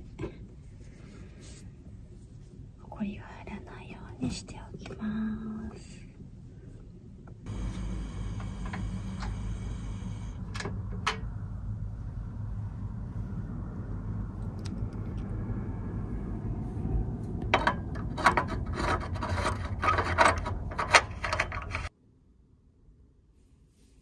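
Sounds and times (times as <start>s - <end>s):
low steady hum: 0.0s - 24.0s
objects scraping and rustling: 18.0s - 21.9s.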